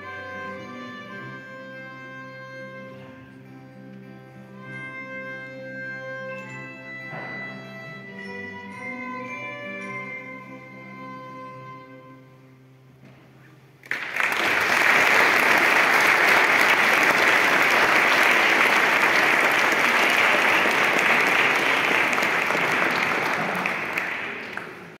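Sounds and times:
held chord of concert music: 0.0s - 25.0s
audience applause: 13.8s - 25.0s.

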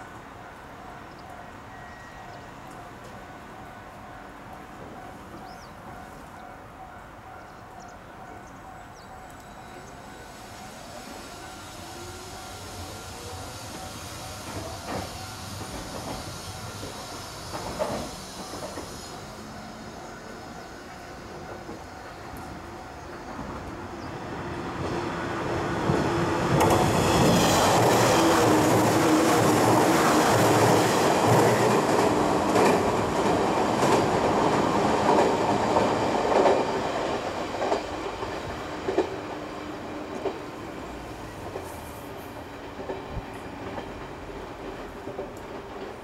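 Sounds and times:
wheels clacking over rail joints: 25.9s - 40.6s.

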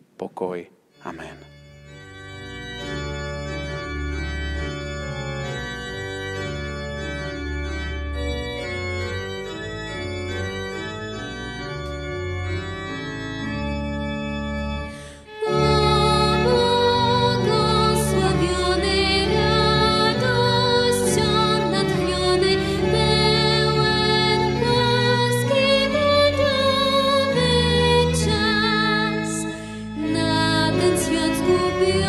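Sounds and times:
electronic organ playing chords: 1.0s - 32.0s
violin: 14.9s - 32.0s
woman singing: 15.4s - 32.0s.

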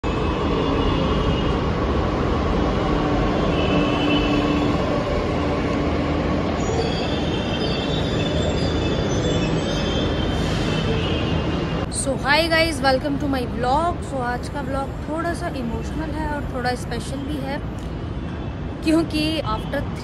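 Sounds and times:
high brake squealing: 6.6s - 11.6s.

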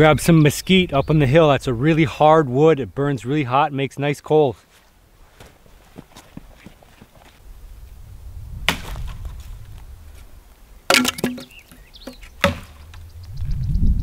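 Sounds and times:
dry wood cracking and snapping: 10.9s - 13.0s.

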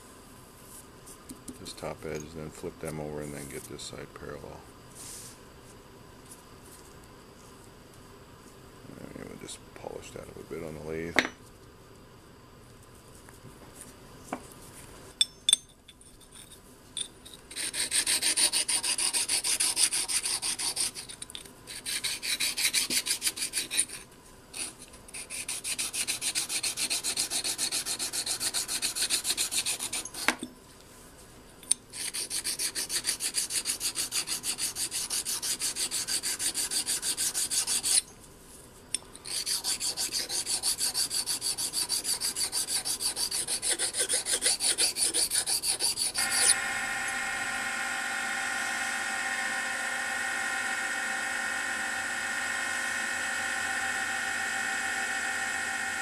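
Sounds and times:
metal jaw rasping on sheet: 17.5s - 24.0s, 24.6s - 30.4s, 32.0s - 38.0s, 39.2s - 46.6s.

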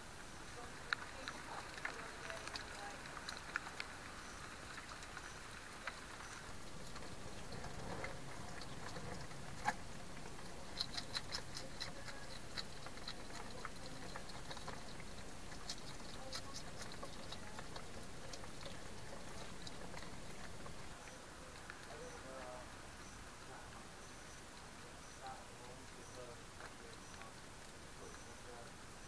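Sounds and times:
faint hiss: 0.0s - 29.0s
hedgehog clicking and tapping in plastic box: 6.7s - 20.9s.

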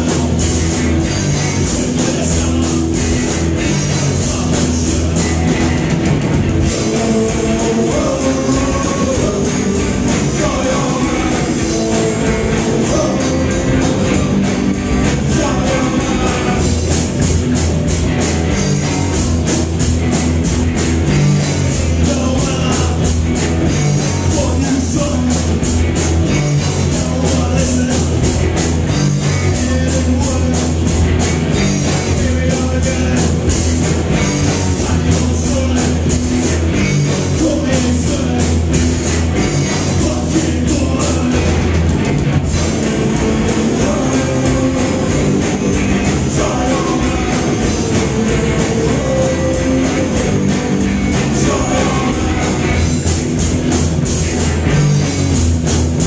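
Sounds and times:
man singing: 0.0s - 5.8s, 6.6s - 17.0s, 21.7s - 25.6s, 26.3s - 28.4s, 29.0s - 38.8s, 39.4s - 41.8s, 42.8s - 53.1s
live rock band playing: 0.0s - 56.0s.

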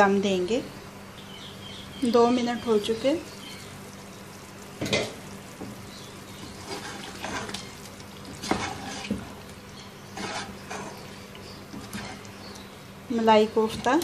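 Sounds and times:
faint sizzle: 0.0s - 14.0s
spoon stirring thick gravy: 6.3s - 12.7s
spoon scraping and knocking pan: 8.3s - 9.4s, 10.1s - 12.3s.

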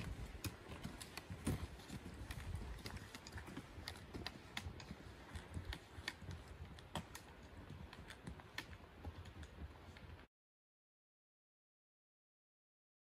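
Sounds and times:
trekking poles and boots on stones: 0.0s - 10.3s.

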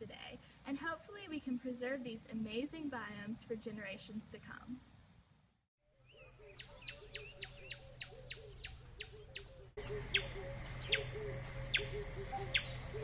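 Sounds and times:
high insect drone: 5.9s - 13.0s.

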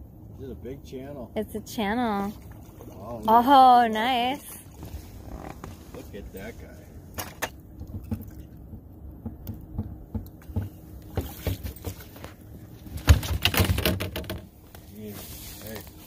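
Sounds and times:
water splashing: 2.0s - 5.4s
fish thumping against boat: 7.2s - 14.5s.

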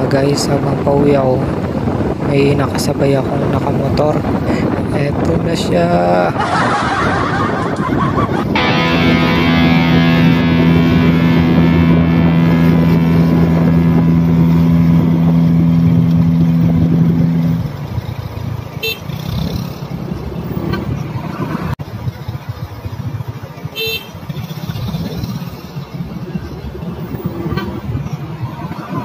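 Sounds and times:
wind and road rumble: 0.0s - 29.0s
loud two-note drone: 8.6s - 17.8s.

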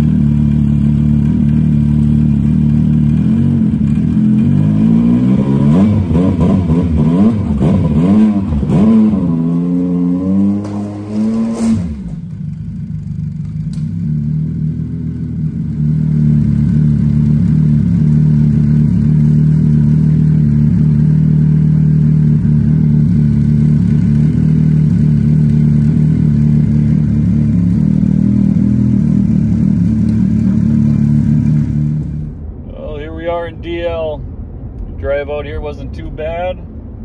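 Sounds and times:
snowmobile engine idling: 0.0s - 5.2s, 12.0s - 32.4s.

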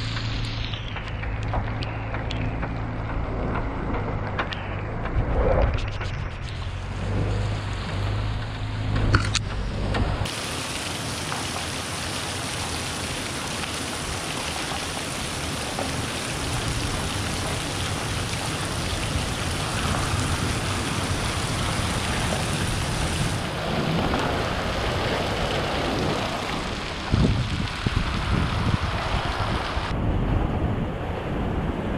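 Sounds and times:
rain hissing: 0.0s - 3.5s, 5.7s - 30.0s
vehicle crawling on wet gravel: 10.2s - 29.9s.

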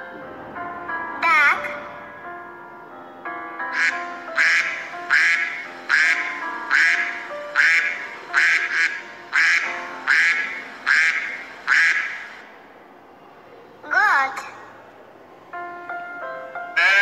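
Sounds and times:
soft background music: 0.0s - 17.0s
duck quacking: 3.7s - 12.4s, 16.8s - 17.0s.

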